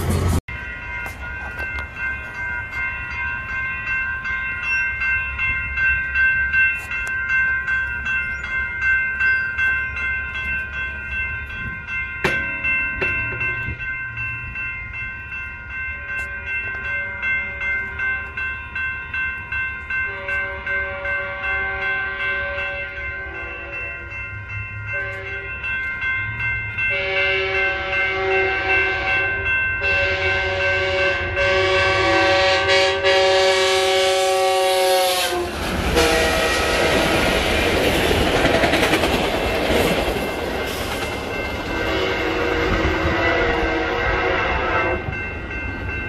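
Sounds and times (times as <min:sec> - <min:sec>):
railroad crossing bell ringing: 0:00.0 - 0:46.0
train horn blasts: 0:20.1 - 0:24.2, 0:24.9 - 0:25.6, 0:26.9 - 0:37.2, 0:41.7 - 0:45.2.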